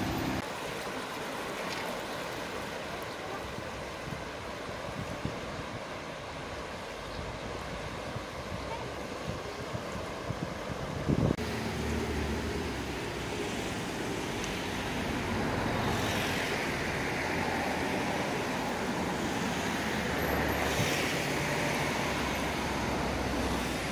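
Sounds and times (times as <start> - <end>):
road traffic rumble: 0.0 - 4.0, 5.6 - 23.9
floodwater rushing: 0.0 - 23.9
wind buffeting microphone: 3.3 - 11.6.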